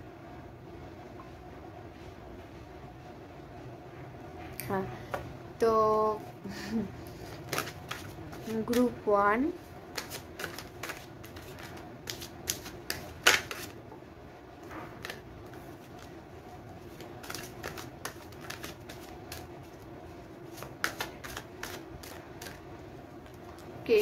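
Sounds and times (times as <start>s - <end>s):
cards shuffled snapping: 7.3s - 8.9s, 9.9s - 13.8s, 15.0s - 16.1s, 16.8s - 19.8s, 20.5s - 22.6s.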